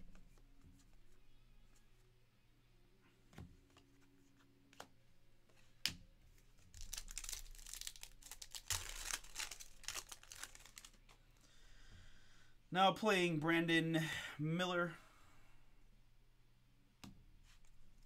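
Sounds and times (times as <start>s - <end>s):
card pack wrapper crinkling: 6.7s - 11.2s.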